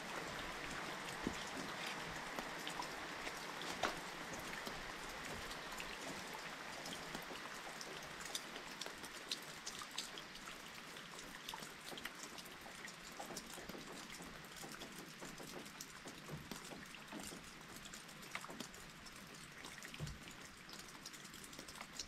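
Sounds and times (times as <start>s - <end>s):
faint rain hiss: 0.0s - 22.0s
raindrops ticking: 0.0s - 22.0s.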